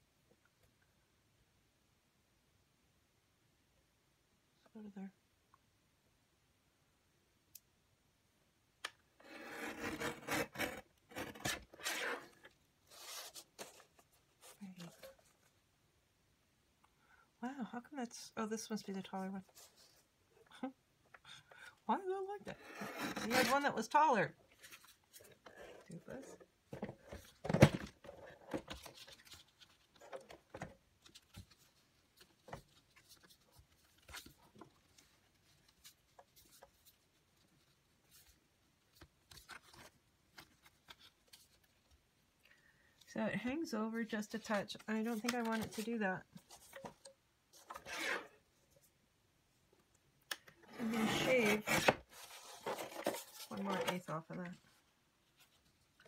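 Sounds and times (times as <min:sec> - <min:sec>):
paper cutter blade scraping: 0:47.7 - 0:48.3.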